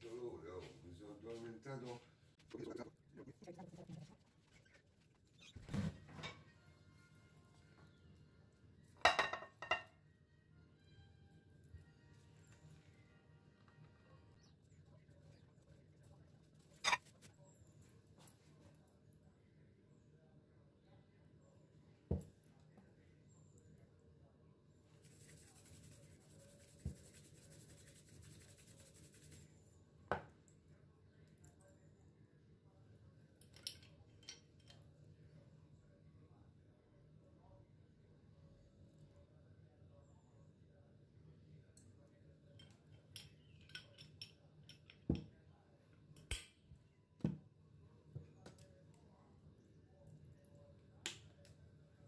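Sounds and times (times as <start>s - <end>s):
glass bottles clicking and knocking: 9.1s - 9.9s.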